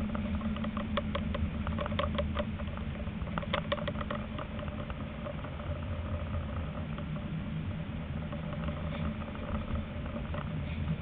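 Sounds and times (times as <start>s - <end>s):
light irregular ticks and taps: 0.0s - 7.3s, 8.0s - 11.0s
tram running hum: 0.0s - 11.0s.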